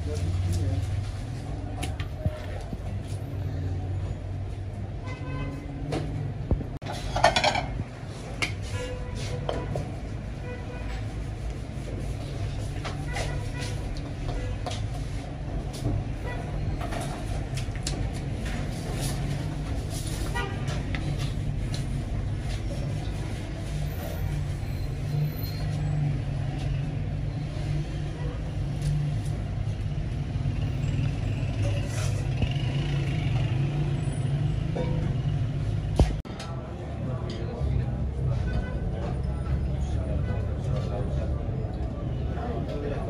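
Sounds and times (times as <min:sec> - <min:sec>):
metal ladle scraping a pot: 0:06.8 - 0:07.8.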